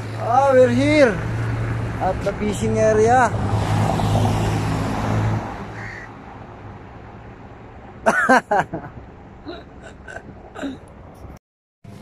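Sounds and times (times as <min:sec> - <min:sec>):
man's voice: 0:02.0 - 0:03.4.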